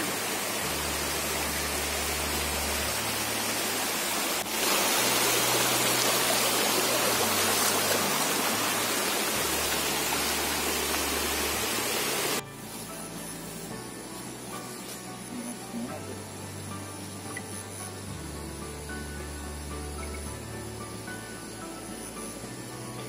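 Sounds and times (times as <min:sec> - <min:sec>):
stream running over rocks: 0:00.0 - 0:12.9.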